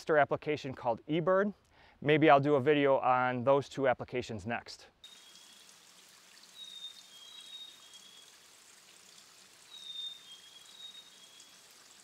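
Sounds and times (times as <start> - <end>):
water trickling into pool: 5.0 - 12.0
songbird whistling: 6.6 - 8.3, 9.7 - 11.6.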